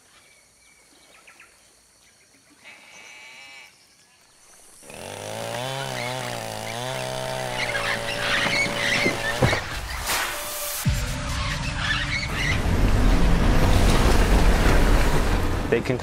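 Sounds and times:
faint forest ambience: 0.0s - 16.0s
bird calls: 7.5s - 10.2s.

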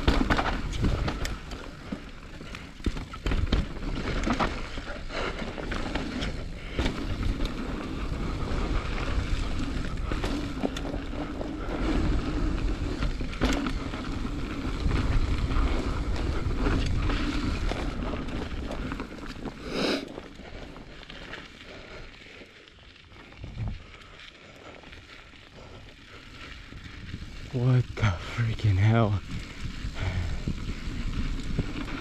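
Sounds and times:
bike rattling over bumps: 0.0s - 32.0s
bike tyres rolling over dirt: 0.0s - 32.0s
wind buffeting microphone: 28.6s - 32.0s.

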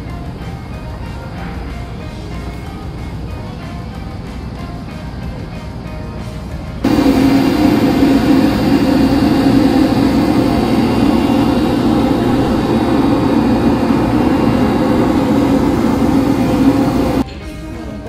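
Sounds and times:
boat engine droning: 6.8s - 17.2s.

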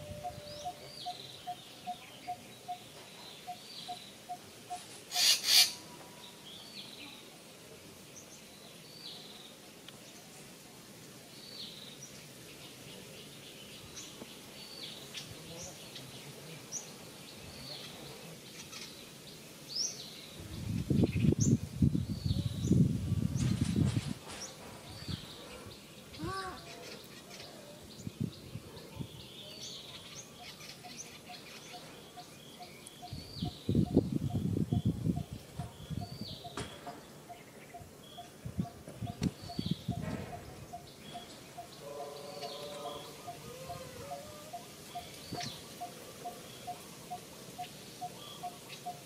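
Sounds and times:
birds chirping: 0.0s - 10.5s, 24.2s - 49.0s.

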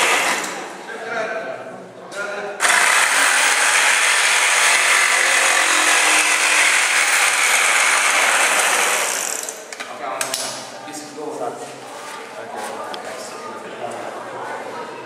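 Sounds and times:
electric jigsaw cutting wood: 2.6s - 9.5s.

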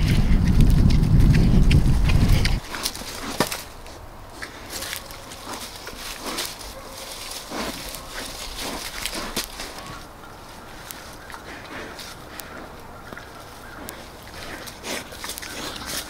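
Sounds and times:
low rumble: 0.0s - 2.7s
pigs rooting in dry leaves: 0.0s - 16.0s
twigs snapping: 1.7s - 10.1s, 10.7s - 16.0s.

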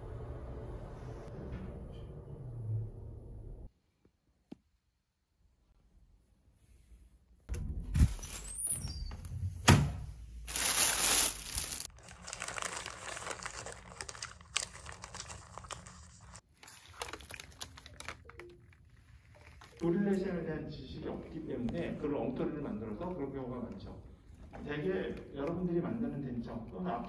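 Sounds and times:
rustling crinkling handling: 10.5s - 19.8s.

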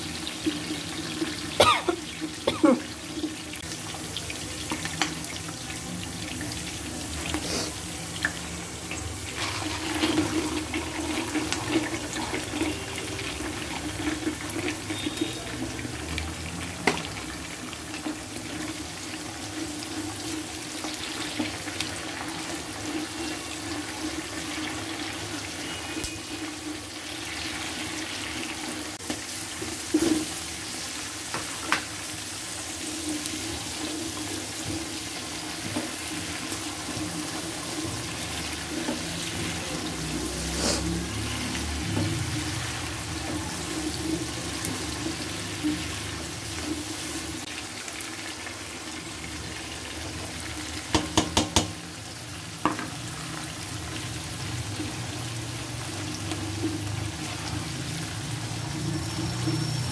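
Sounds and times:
vegetables sizzling in oil: 0.0s - 59.9s
spatula knocking on pan: 50.9s - 51.8s.

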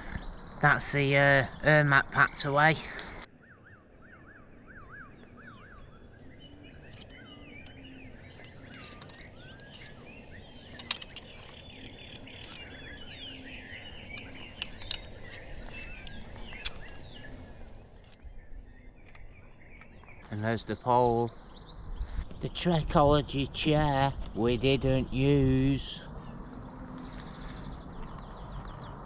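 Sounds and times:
birds chirping and trilling: 0.0s - 29.0s
wavering bird warble: 0.0s - 29.0s.

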